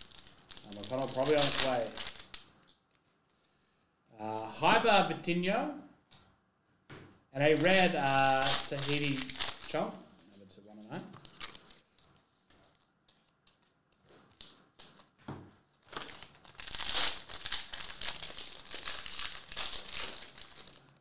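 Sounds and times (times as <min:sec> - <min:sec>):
foil wrapper tearing and crinkling: 0:00.0 - 0:02.5, 0:07.6 - 0:09.7, 0:11.2 - 0:11.8, 0:15.8 - 0:21.0.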